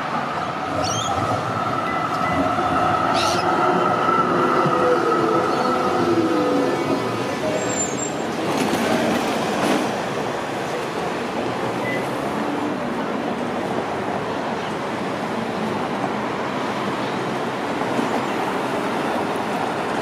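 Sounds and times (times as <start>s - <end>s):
tram brake squeal: 0.7s - 3.6s, 5.4s - 8.3s.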